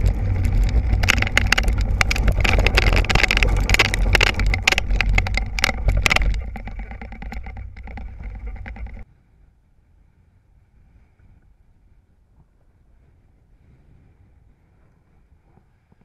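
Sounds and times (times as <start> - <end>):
wind buffeting microphone: 0.0 - 9.0
buggy rolling over gravelly dirt: 0.0 - 9.1
wheels and frame rattling: 0.0 - 9.1
faint outdoor background: 4.5 - 16.0.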